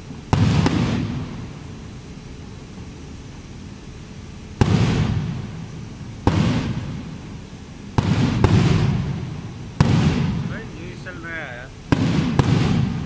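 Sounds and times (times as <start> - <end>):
firework shells bursting: 0.2 - 1.4, 4.6 - 13.0.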